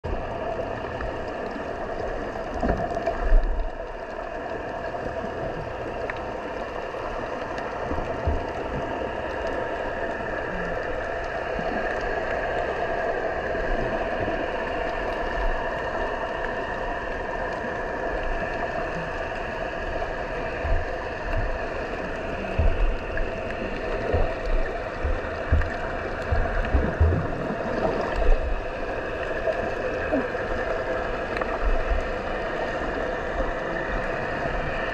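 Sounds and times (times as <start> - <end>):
underwater rushing water hiss: 0.1 - 34.9
low thumps: 22.5 - 23.2, 23.9 - 27.6.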